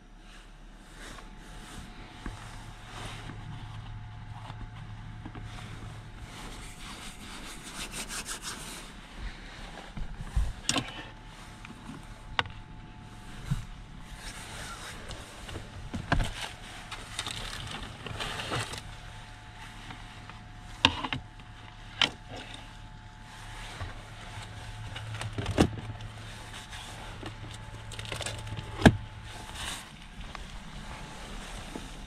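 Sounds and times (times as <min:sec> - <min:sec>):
steady low hum: 0:00.0 - 0:32.0
packaging rustling: 0:16.4 - 0:18.8.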